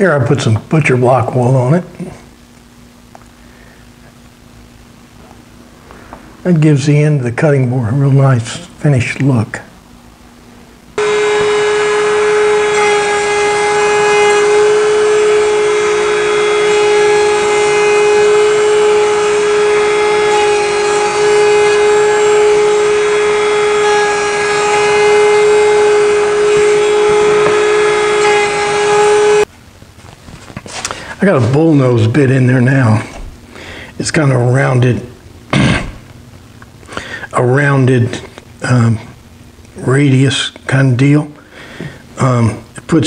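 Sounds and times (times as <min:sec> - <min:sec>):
router whining while cutting wood: 0:11.0 - 0:29.5.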